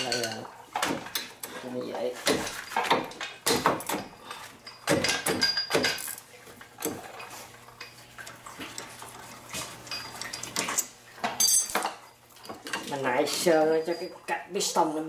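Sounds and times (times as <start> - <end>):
wrench clinking on metal parts: 11.4 - 11.9.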